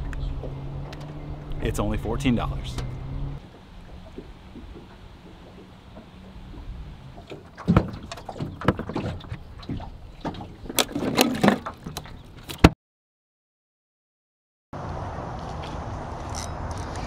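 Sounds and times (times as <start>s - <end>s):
plastic cooler opening: 10.7s - 12.7s.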